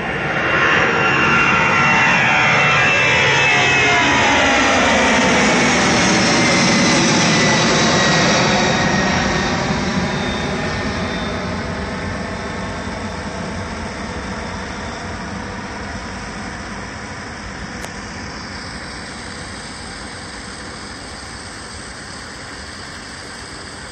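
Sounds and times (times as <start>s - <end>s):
jet engines with falling whine: 0.0s - 23.9s.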